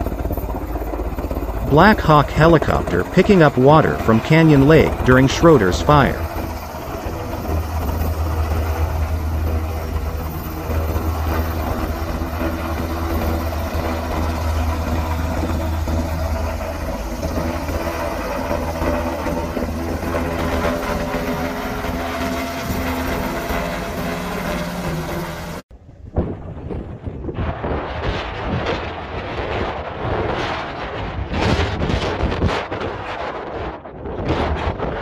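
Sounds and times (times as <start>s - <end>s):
helicopter rotors droning: 0.0s - 25.6s.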